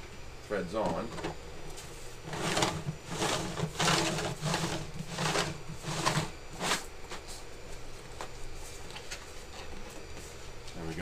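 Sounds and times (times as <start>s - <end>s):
plastic threads scraping: 2.2s - 6.8s.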